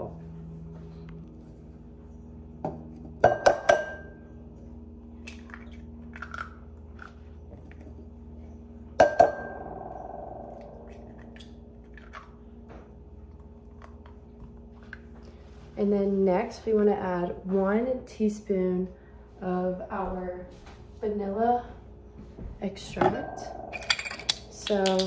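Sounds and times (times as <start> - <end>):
bowl ringing: 0.0 - 15.1, 23.0 - 25.0.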